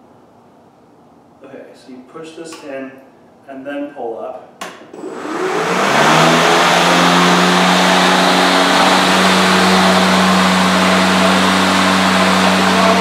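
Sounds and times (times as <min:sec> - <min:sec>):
electric lawn mower whirring: 0:05.0 - 0:13.0.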